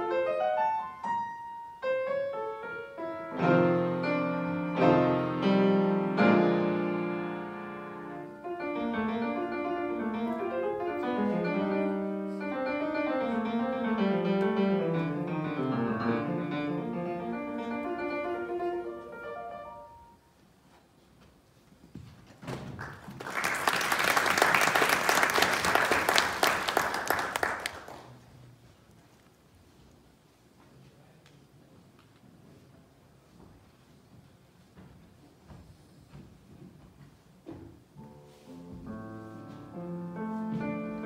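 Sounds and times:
grand piano solo: 0.0 - 20.2, 38.0 - 41.0
audience clapping: 22.7 - 28.2.

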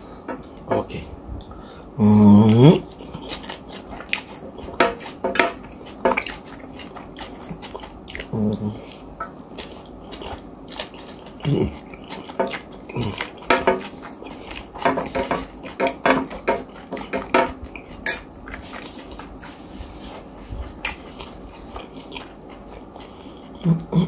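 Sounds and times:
spoon scraping a plate: 13.3 - 20.3.

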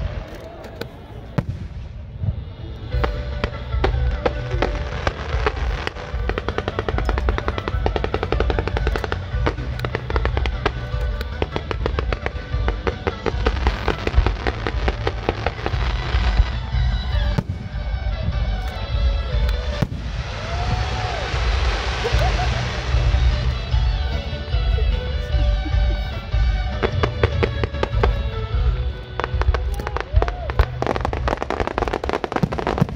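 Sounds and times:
fireworks crackling and bursting: 0.0 - 32.9
music: 0.0 - 32.9
loud firework bang: 19.6 - 23.4.

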